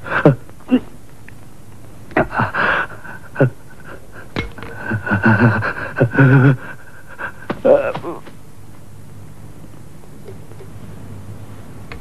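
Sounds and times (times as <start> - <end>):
man groaning: 7.6 - 8.2.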